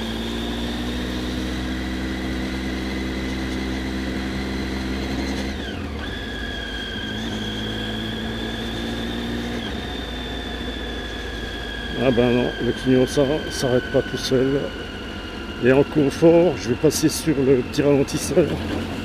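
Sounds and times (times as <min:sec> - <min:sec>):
motorcycle engine running: 0:00.0 - 0:19.0
steady high whine: 0:09.7 - 0:19.0.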